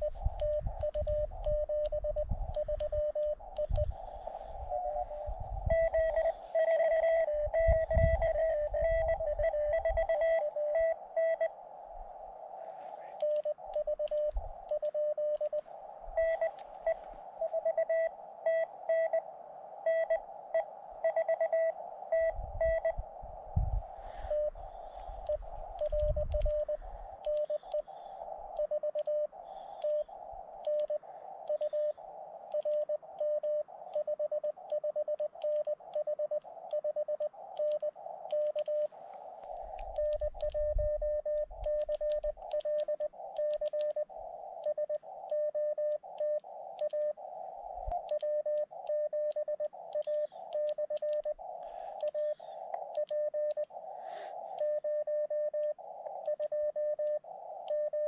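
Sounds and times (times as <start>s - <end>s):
small clicks: 0.0s - 4.0s, 13.2s - 15.7s, 24.3s - 47.3s, 47.9s - 58.0s
morse code tone: 0.0s - 11.5s
receiver hiss: 0.0s - 58.0s.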